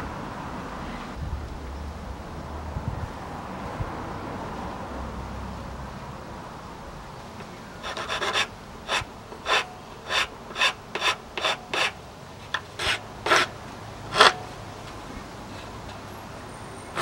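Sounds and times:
hand file rasping on plywood: 0:07.8 - 0:12.0, 0:12.6 - 0:14.4.

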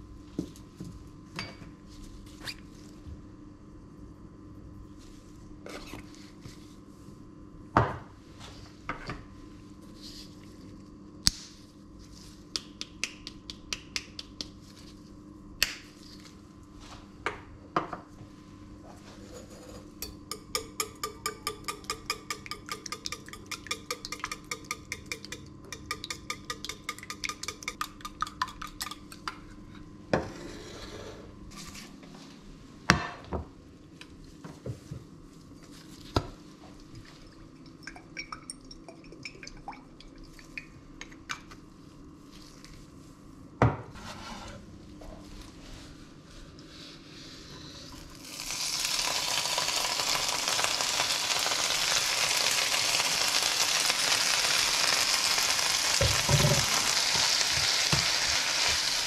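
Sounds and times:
spice shakers clicking and tapping: 0:12.5 - 0:14.7, 0:20.0 - 0:29.5
whisk clinking against metal bowl: 0:20.0 - 0:29.0
frying pan knocking on hob: 0:20.1 - 0:27.5.

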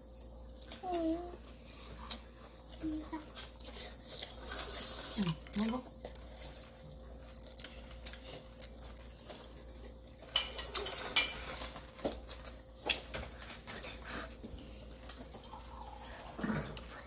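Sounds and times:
cutlery clinking on plates: 0:10.2 - 0:11.8.

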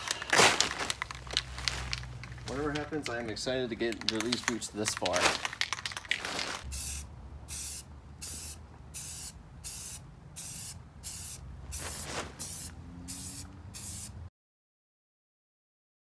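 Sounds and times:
aerosol spray can hissing: 0:06.7 - 0:14.2.

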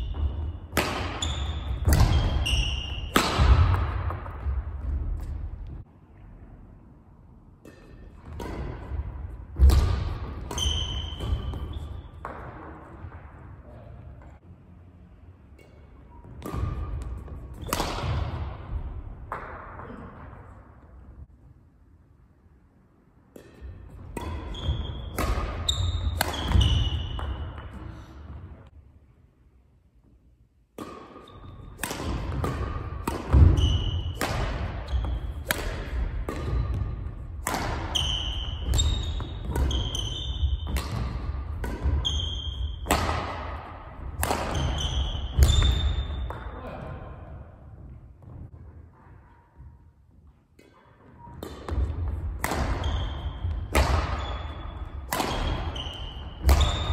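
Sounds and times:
court shoes squeaking: 0:00.0 - 0:05.4, 0:09.6 - 0:13.2, 0:15.5 - 0:18.3, 0:23.4 - 0:28.6, 0:31.1 - 0:43.3, 0:44.0 - 0:46.8, 0:48.2 - 0:56.9
badminton racket hitting shuttlecock: 0:00.1 - 0:04.4, 0:23.3 - 0:27.4, 0:30.8 - 0:46.3, 0:50.6 - 0:56.9.

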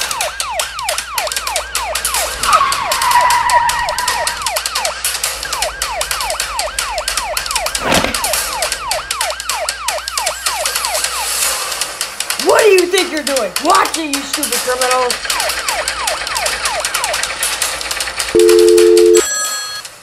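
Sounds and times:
police siren wailing: 0:00.0 - 0:11.7, 0:15.1 - 0:17.6
held squeal: 0:02.4 - 0:04.4.

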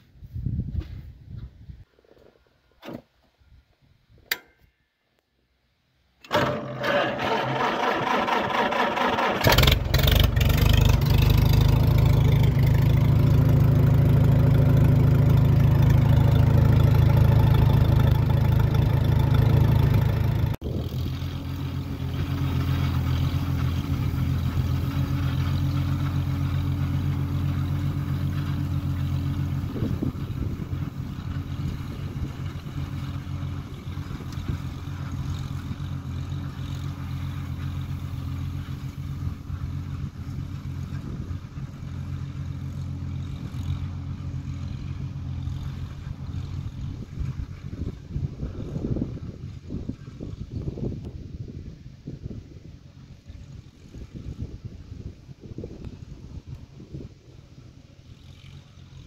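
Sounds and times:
tractor engine starter cranking: 0:06.2 - 0:11.6
tractor engine running: 0:06.2 - 0:59.0.

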